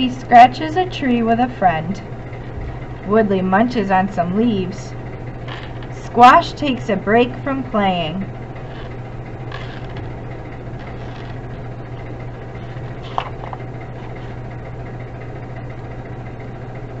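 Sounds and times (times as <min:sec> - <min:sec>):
steady low hum: 0:00.0 - 0:17.0
book page turning: 0:08.7 - 0:10.2, 0:10.8 - 0:11.6, 0:12.4 - 0:14.4.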